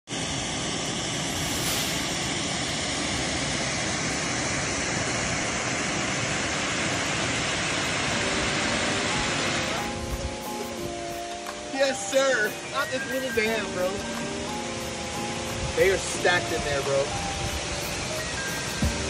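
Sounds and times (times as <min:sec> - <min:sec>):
water rushing over spillway: 0:00.1 - 0:19.0
faint music: 0:08.0 - 0:19.0.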